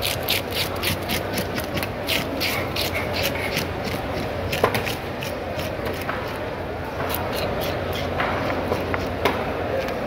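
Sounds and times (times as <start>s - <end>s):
hand scaler scraping fish scales: 0.0s - 6.4s.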